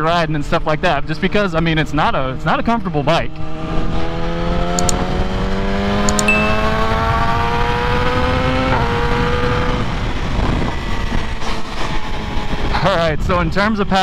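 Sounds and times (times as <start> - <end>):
motorcycle engine accelerating: 2.3 - 13.4
wind rumble on microphone: 6.8 - 14.0.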